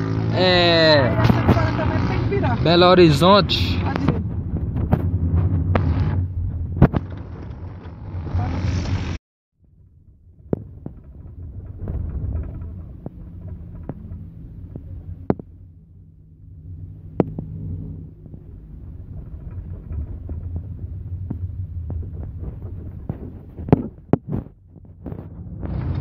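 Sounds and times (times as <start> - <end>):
car engine and road rumble: 0.0 - 26.0
sharp knocks and clicks: 10.4 - 15.6, 17.1 - 26.0.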